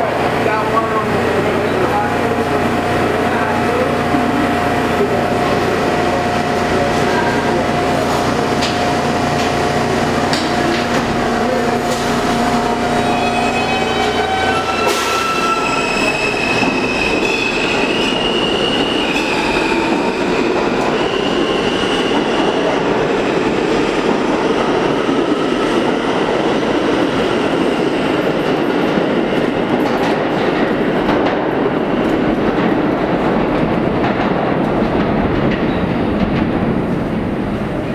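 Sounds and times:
subway train humming: 0.0 - 37.9
train doors closing: 3.3 - 23.1
wheels clacking on rails: 3.3 - 37.0.

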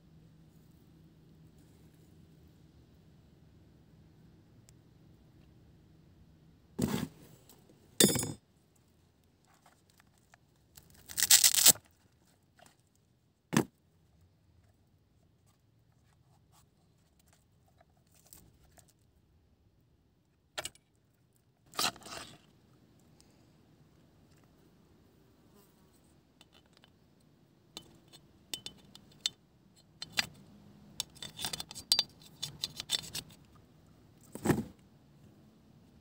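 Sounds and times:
plastic sheath clicks and rattles: 31.0 - 33.4.

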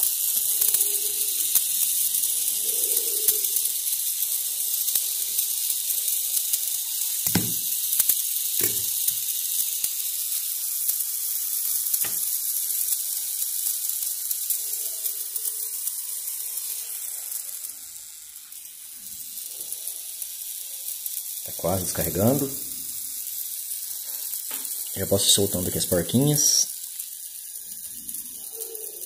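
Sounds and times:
clock gears whirring: 0.0 - 29.0.

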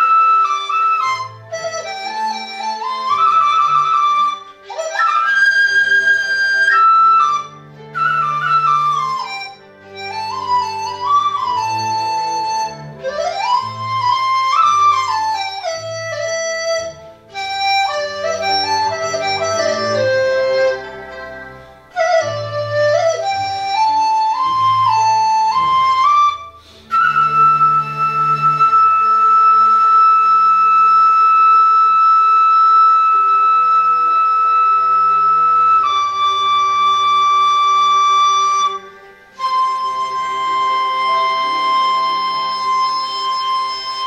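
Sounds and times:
bamboo flute playing: 0.0 - 44.0
low held accompaniment notes: 0.0 - 44.0.

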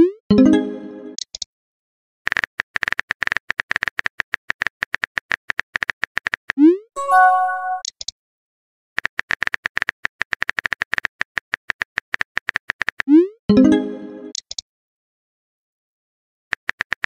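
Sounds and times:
message chime: 0.3 - 1.2, 7.0 - 7.9.

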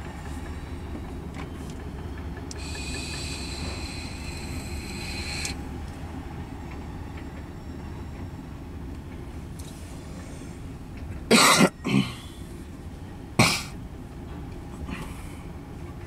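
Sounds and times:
train wheels squealing: 0.0 - 10.8
freight train rumbling past: 0.0 - 16.0.

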